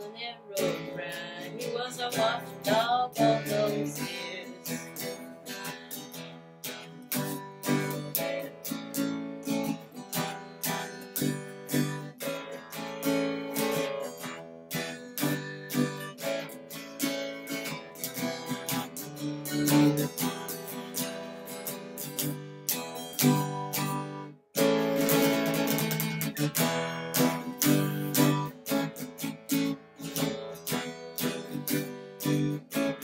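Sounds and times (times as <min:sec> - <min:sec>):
acoustic guitar strumming: 0:00.0 - 0:33.0.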